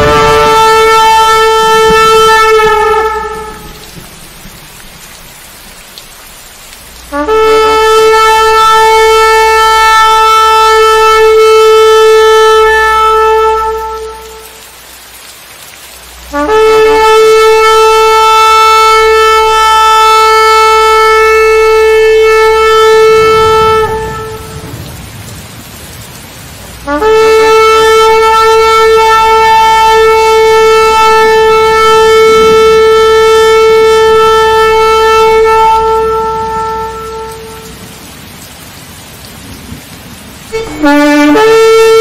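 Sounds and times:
ram's horn blasts: 0.0 - 4.1, 7.0 - 14.7, 16.2 - 24.7, 26.8 - 37.8, 40.5 - 42.0
low rushing rumble: 0.0 - 5.1.

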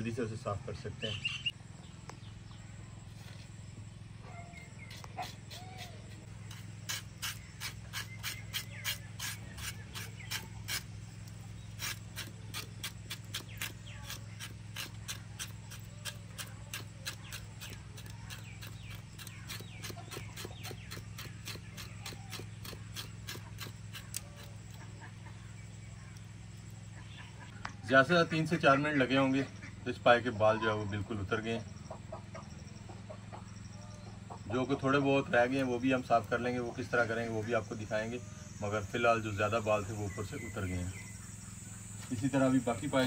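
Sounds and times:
steady low hum: 0.0 - 43.0
knife scraping hair off skin: 4.9 - 10.9, 11.8 - 24.6.

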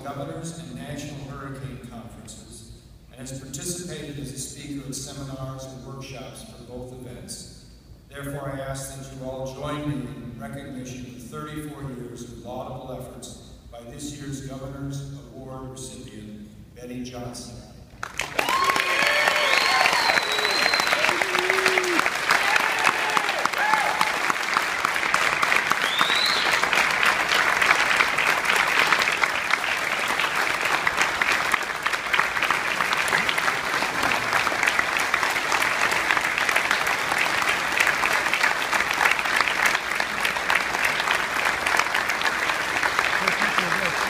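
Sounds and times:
audience applauding: 18.0 - 44.0.

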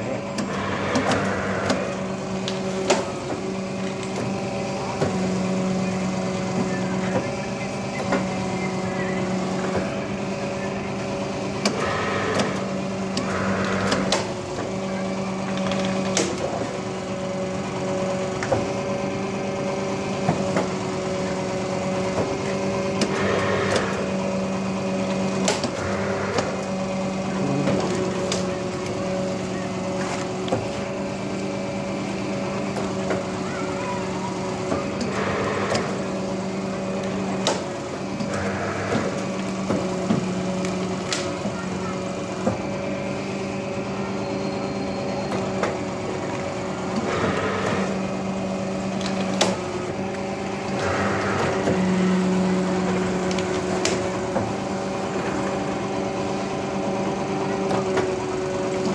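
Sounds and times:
electric motor hum: 0.0 - 44.0.

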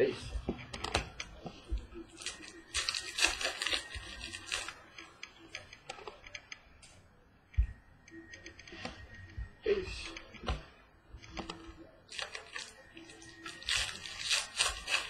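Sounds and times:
wrapper tearing and crinkling: 2.2 - 4.7, 12.1 - 15.0.

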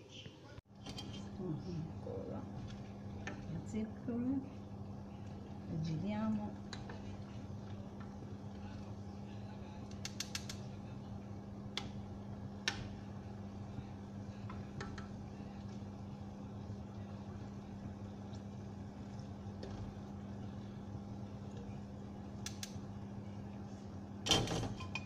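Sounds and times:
steady low hum: 0.0 - 25.0
tongs clicking against steel pot: 9.9 - 10.6, 22.4 - 22.8.

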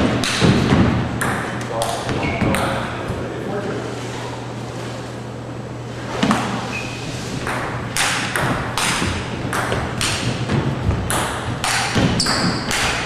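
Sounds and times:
table tennis ball pings: 11.1 - 13.0.

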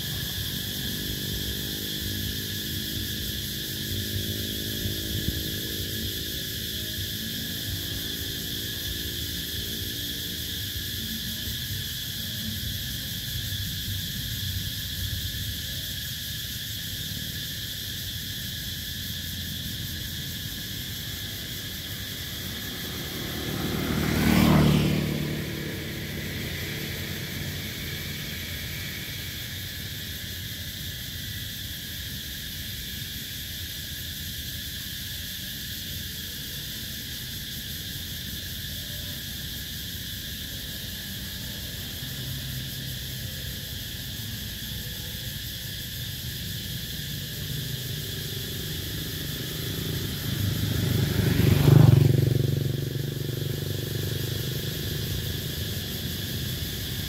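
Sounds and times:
cicadas shrilling: 0.0 - 57.0
motor vehicle passing: 19.9 - 30.3, 46.8 - 57.0.

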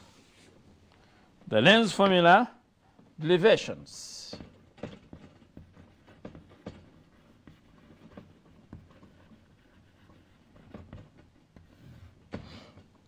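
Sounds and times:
chalk tapping and scraping on chalkboard: 4.2 - 13.0.

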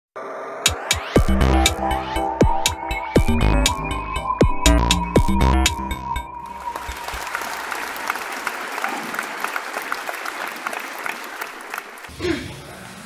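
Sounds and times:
electronic tune: 0.7 - 7.2
audience applauding: 6.4 - 12.2.

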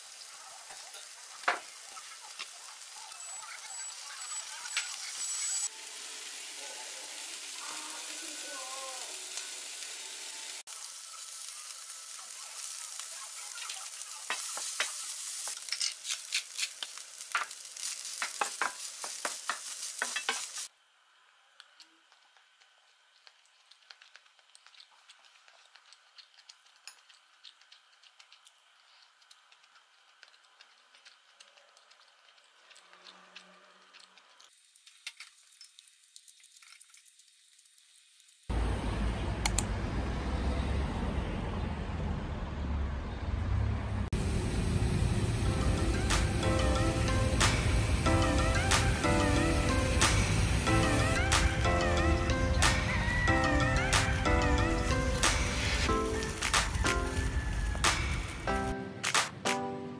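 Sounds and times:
food sizzling in a wok: 0.0 - 28.0, 33.9 - 39.2, 44.2 - 58.8.

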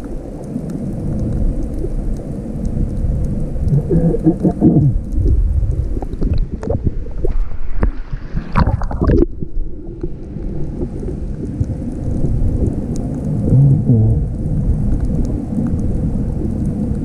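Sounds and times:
crackles: 0.0 - 17.0
splashing and bubbling: 0.0 - 17.0
underwater water sloshing: 3.5 - 13.5.

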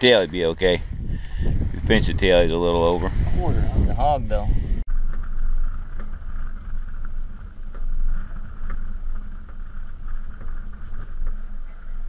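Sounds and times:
water around boat: 0.0 - 12.0
wind rumble: 0.0 - 12.0
faint steady hum: 4.7 - 12.0.

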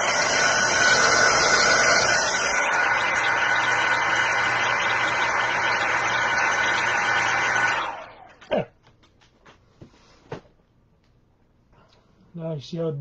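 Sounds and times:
hot-air blower humming: 0.0 - 8.6.

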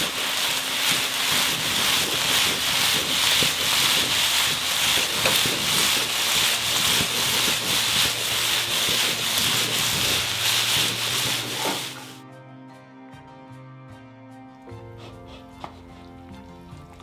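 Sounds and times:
food sizzling in hot oil: 0.0 - 12.2.

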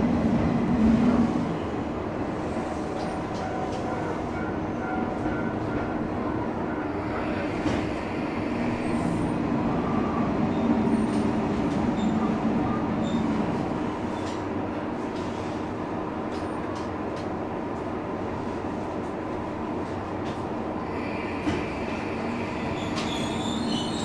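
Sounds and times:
railcar engine hum: 0.0 - 24.0.

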